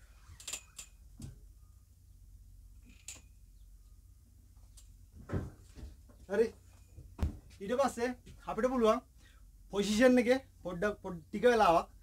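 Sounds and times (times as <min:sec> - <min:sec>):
low steady hum: 0:00.0 - 0:12.0
foot thumping on metal chair: 0:05.2 - 0:06.1, 0:07.0 - 0:07.6.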